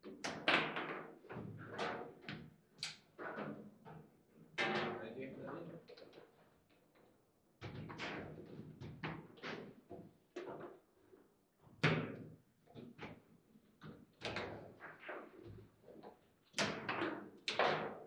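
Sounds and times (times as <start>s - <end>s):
foosball knocks and clacks: 0.1s - 5.0s, 16.5s - 18.0s.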